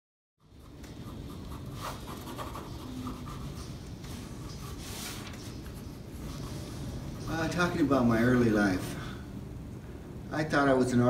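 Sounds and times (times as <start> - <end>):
pencil scratching on paper: 0.4 - 6.8
low room rumble: 0.4 - 11.0.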